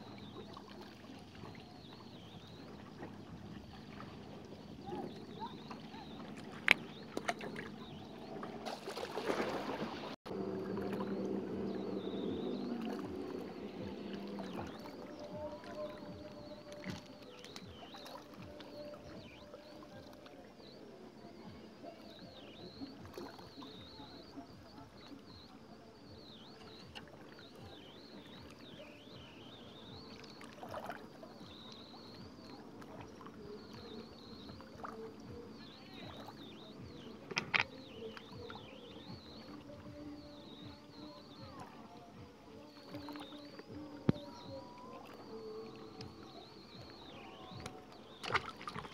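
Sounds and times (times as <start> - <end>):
distant motorboat engine hum: 0.0 - 48.9
lake water lapping at rocks: 0.0 - 48.9
fish splashing into water: 3.8 - 11.1, 47.5 - 48.9.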